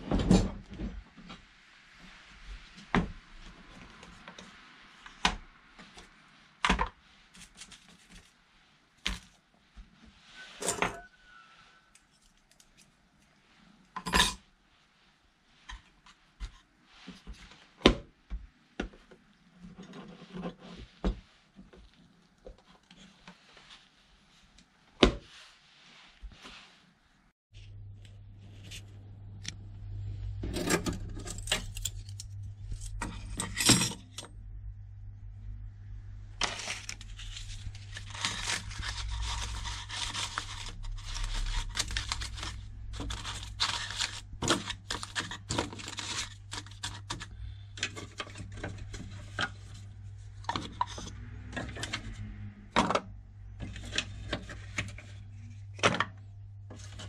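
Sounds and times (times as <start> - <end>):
rustling and scraping: 0.0 - 29.2, 30.3 - 34.4, 36.2 - 57.0
low steady hum: 27.5 - 57.0.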